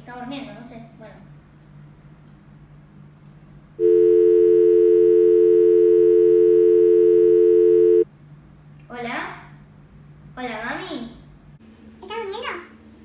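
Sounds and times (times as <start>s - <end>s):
telephone dial tone: 3.8s - 8.0s.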